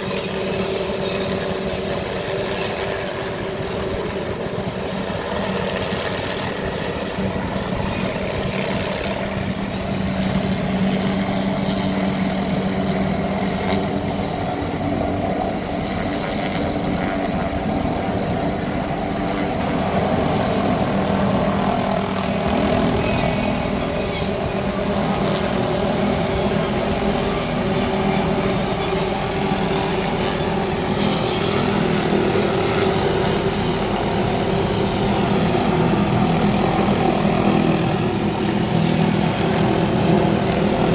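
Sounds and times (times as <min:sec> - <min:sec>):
helicopter rotor and engine drone: 0:00.0 - 0:40.9.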